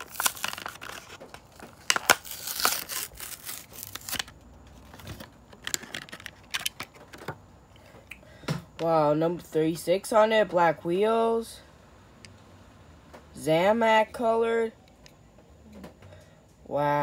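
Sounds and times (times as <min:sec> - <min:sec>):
cardboard ripping: 0:00.0 - 0:05.2
plastic blister crinkling: 0:00.0 - 0:07.3.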